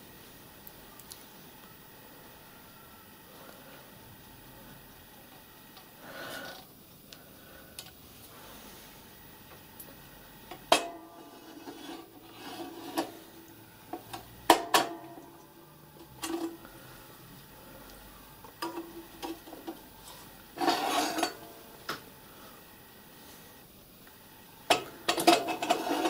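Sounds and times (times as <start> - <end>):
metal scraping and clanking: 10.7 - 15.0, 18.6 - 21.6, 25.1 - 26.0.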